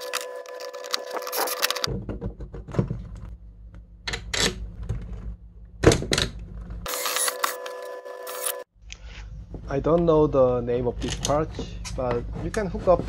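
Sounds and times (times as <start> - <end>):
screwdriver clicking and scraping bolts: 6.9 - 8.6.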